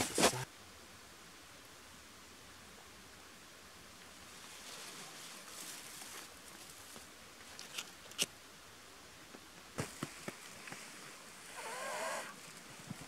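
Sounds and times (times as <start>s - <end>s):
twigs crackling and snapping: 7.5s - 8.3s.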